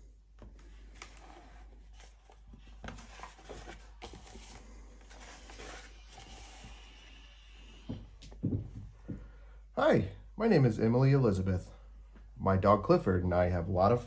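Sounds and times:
book pages turning: 0.4s - 7.2s.

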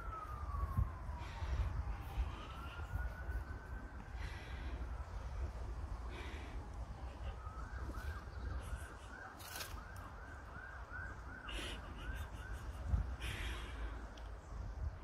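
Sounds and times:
wind rumbling on microphone: 0.0s - 15.0s
birds calling: 5.9s - 14.4s.

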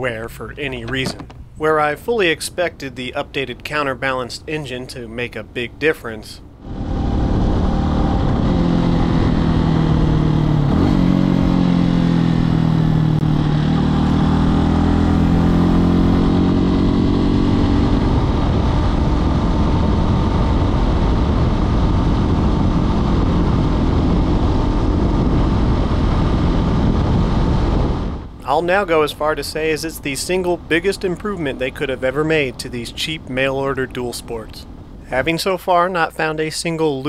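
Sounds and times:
wind and road noise: 0.0s - 37.0s
motorcycle engine running: 6.6s - 28.3s.

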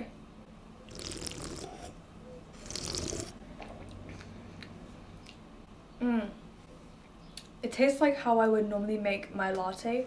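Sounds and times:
person sipping and swallowing: 0.9s - 2.0s, 2.6s - 3.4s.

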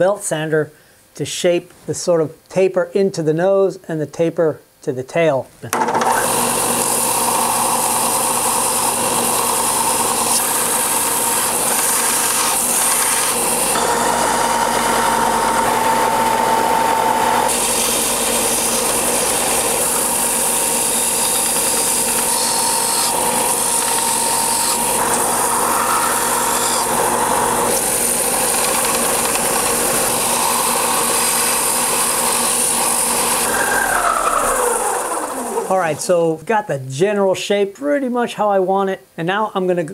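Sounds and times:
belt sander humming: 5.7s - 36.4s.

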